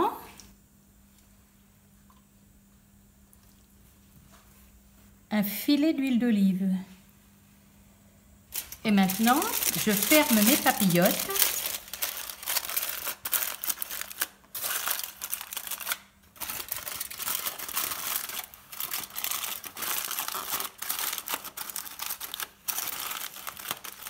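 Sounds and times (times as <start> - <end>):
aluminium foil crinkling: 8.5 - 24.0.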